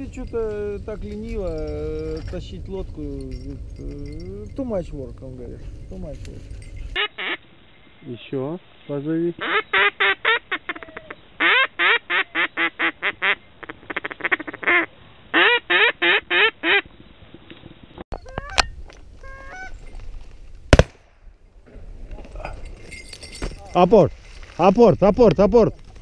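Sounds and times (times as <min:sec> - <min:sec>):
duck call quacking: 0:07.0 - 0:07.4, 0:09.4 - 0:16.8
shotgun shot: 0:20.7 - 0:21.2.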